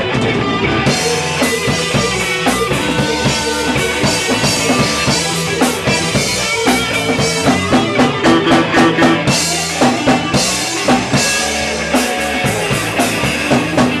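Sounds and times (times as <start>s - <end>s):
drum kit beat: 0.0s - 14.0s
electric guitar solo: 0.0s - 14.0s
second electric guitar: 0.0s - 14.0s.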